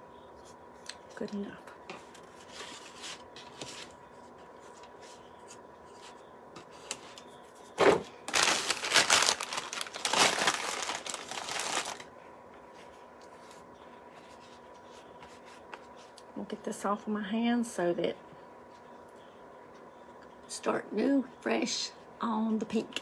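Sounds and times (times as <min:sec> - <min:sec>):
paper towel crinkling: 0:08.3 - 0:16.2.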